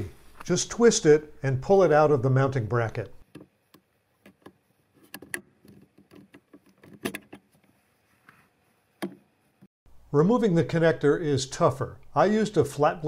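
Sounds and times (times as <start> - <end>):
faint plastic clicks and rattles: 3.2 - 7.7.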